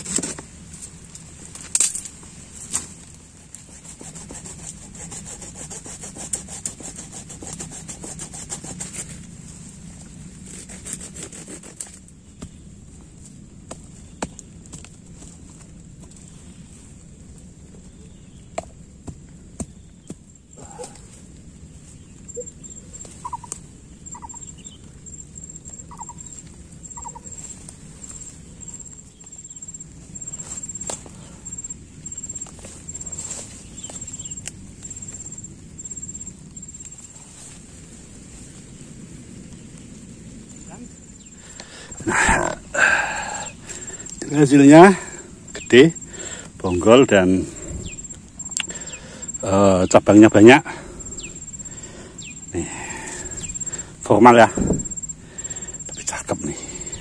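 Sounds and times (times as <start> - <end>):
hands scraping soil and roots: 0.0 - 17.0, 24.9 - 38.6, 40.6 - 57.0
dry stems rustling: 0.0 - 18.1, 19.2 - 57.0
hand saw cutting wood: 3.6 - 9.2, 10.4 - 12.0
high rhythmic chirping: 22.2 - 37.0, 44.2 - 57.0.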